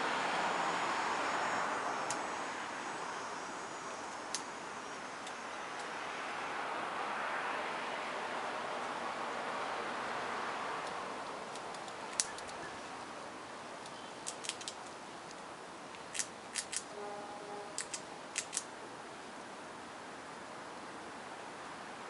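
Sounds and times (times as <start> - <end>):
background hiss: 0.0 - 22.0
squirrel gnawing crunching clicks: 4.1 - 4.5, 5.2 - 5.9, 10.8 - 13.1, 13.8 - 16.9, 17.8 - 18.7.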